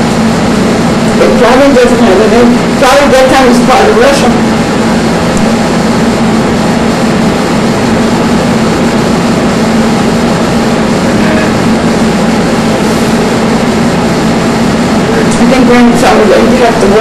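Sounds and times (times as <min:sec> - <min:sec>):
steady hum and hiss: 0:00.0 - 0:17.0
low droning tone: 0:10.7 - 0:13.4.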